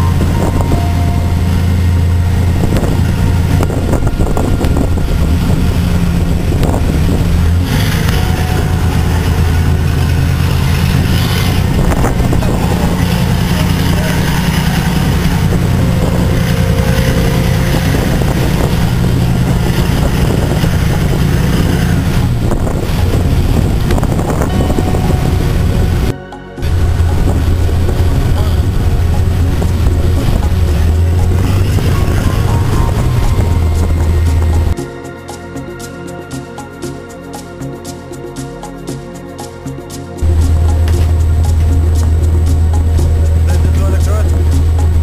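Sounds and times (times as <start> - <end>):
wind buffeting microphone: 0.0 - 34.8, 40.2 - 45.0
low drone of diesel engines: 0.0 - 45.0.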